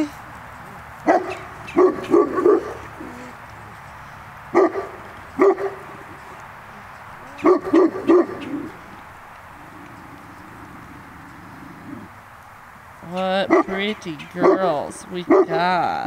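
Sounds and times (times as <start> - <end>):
dog barking: 1.0 - 3.2, 4.5 - 6.2, 7.2 - 8.9, 13.5 - 13.8, 14.4 - 14.7, 15.3 - 15.6.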